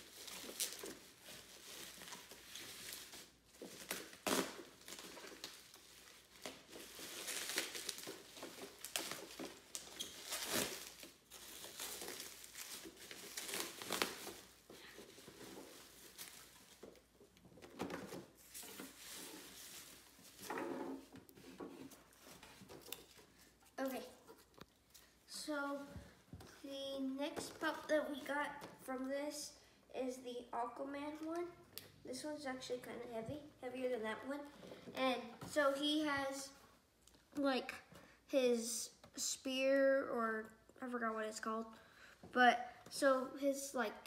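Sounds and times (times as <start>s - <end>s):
bubble wrap crinkling: 0.0s - 20.5s.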